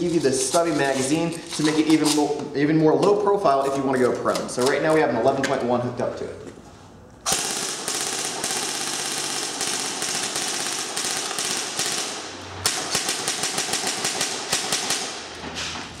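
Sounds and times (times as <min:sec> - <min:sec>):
airsoft gun firing full auto: 0:07.3 - 0:15.3.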